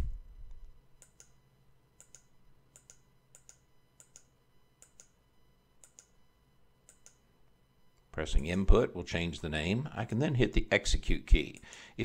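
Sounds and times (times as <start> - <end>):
computer mouse clicks: 1.0 - 1.4, 2.0 - 5.2, 5.8 - 6.2, 6.9 - 7.2.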